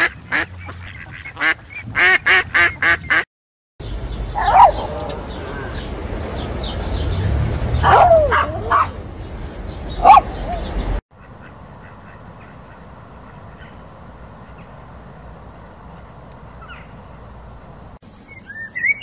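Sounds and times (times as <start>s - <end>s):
small dog whining and yipping: 4.4s - 5.2s, 7.8s - 8.9s.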